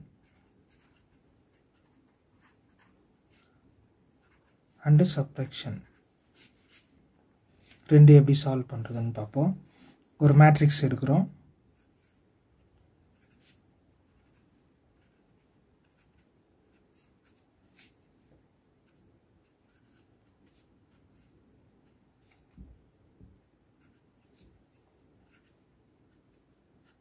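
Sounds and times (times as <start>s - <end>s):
pen scratching on paper: 0.2s - 2.9s, 13.2s - 18.0s, 18.8s - 21.3s, 23.8s - 27.0s.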